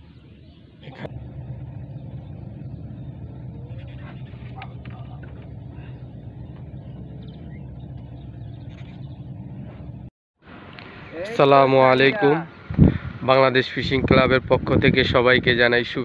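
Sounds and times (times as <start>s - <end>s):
engine running steadily: 0.7s - 11.3s.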